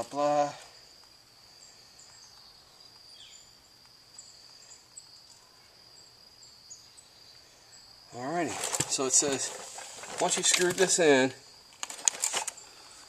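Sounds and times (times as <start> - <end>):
high insect trill: 0.0 - 13.0.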